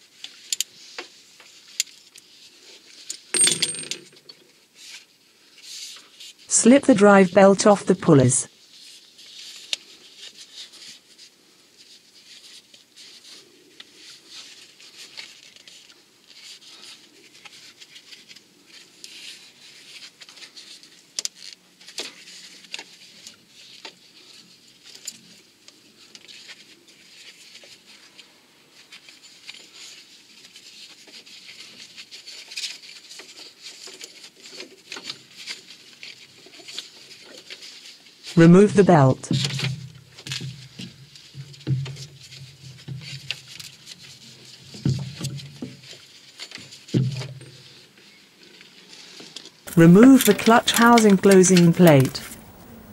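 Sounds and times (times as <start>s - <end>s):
rubber belt rubbing and rustling: 8.6s - 28.1s, 28.8s - 38.3s.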